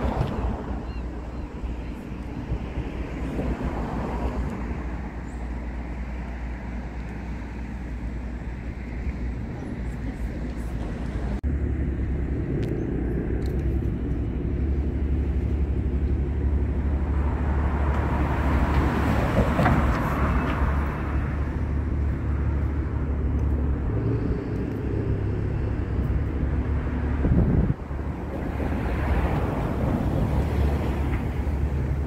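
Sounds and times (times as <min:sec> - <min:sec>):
low rumble of vehicle engines: 0:00.0 - 0:32.0
vehicle passing: 0:08.6 - 0:32.0.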